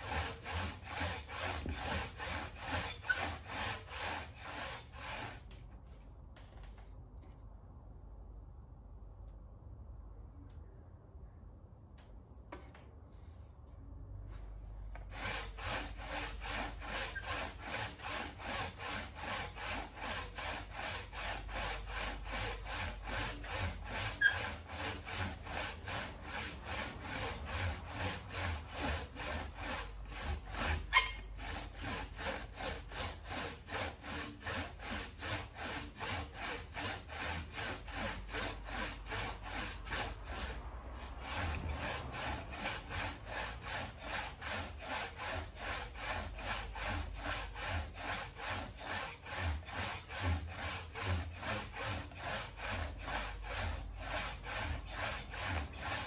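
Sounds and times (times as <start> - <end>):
hand saw cutting wood: 0.0 - 5.6, 14.9 - 56.0.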